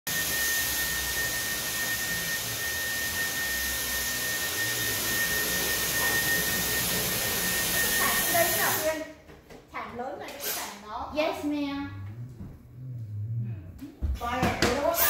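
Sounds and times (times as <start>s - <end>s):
stick vacuum cleaner running: 0.1s - 9.0s.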